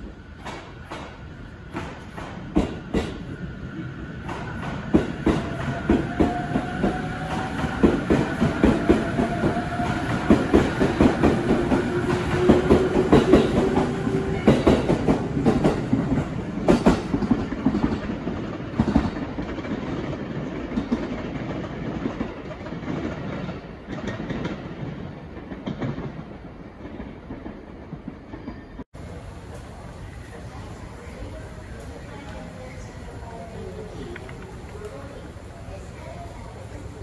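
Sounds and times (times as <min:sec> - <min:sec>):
train wheels clacking over rail joints: 0:00.4 - 0:03.3, 0:04.2 - 0:28.7.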